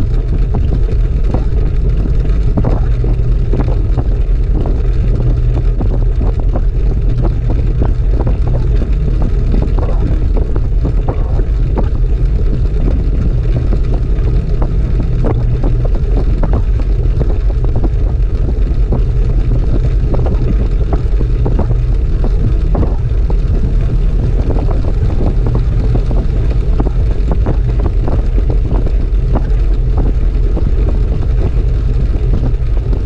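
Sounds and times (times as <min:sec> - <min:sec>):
bike tyres rolling on wood: 0:00.0 - 0:33.0
light irregular ticks: 0:00.0 - 0:33.0
wind rush: 0:00.0 - 0:33.0.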